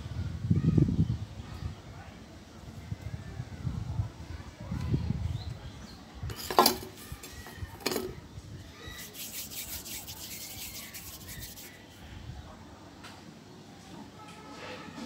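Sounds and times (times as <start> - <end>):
dry rubbing: 9.0 - 11.9.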